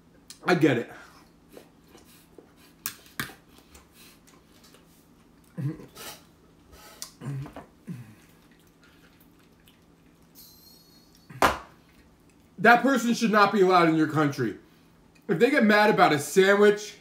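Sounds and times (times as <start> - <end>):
chewing: 8.1 - 10.4.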